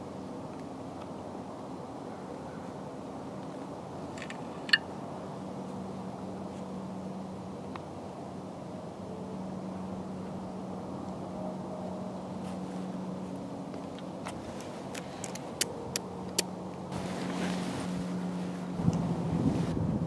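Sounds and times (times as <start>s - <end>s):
distant road traffic rumble: 0.0s - 20.0s
faint hum: 0.0s - 20.0s
sharp clicks and crackles: 13.8s - 16.8s.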